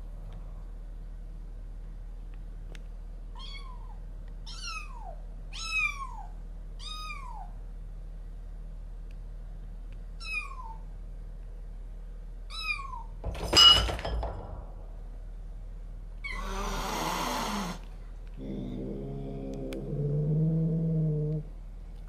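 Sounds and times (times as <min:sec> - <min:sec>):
adult cat hissing: 0:16.3 - 0:17.8.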